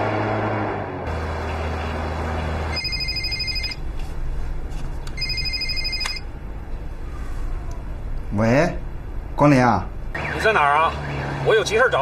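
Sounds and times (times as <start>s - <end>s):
mobile phone ringing: 2.7s - 3.8s, 5.2s - 6.3s.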